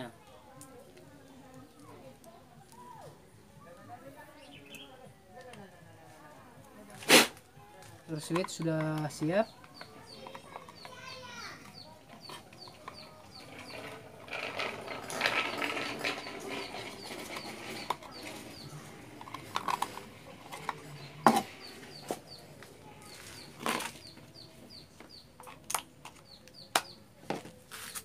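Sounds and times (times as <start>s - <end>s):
handling noise: 7.0s - 28.0s.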